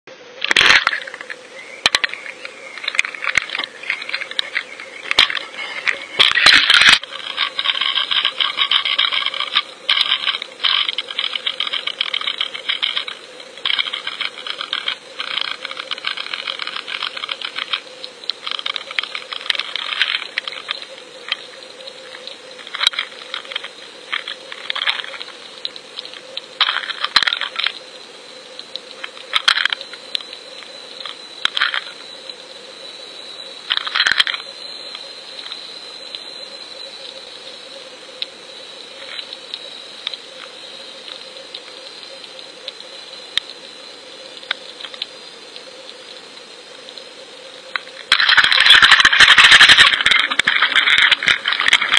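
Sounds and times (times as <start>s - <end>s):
faint steady hum: 0.1s - 51.9s
underwater clicking and crackling: 0.4s - 32.5s, 33.6s - 51.9s.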